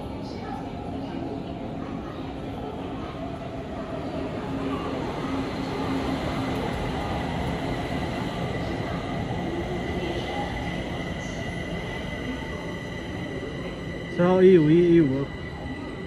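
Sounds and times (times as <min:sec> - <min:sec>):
train whine: 0:04.3 - 0:16.0.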